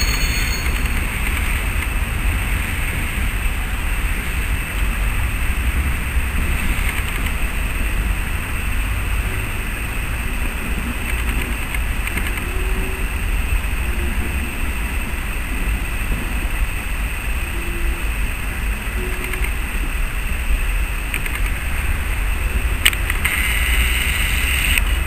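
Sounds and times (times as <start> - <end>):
faint high whine: 0.0 - 1.8, 22.5 - 25.0
train rumble: 0.0 - 25.0.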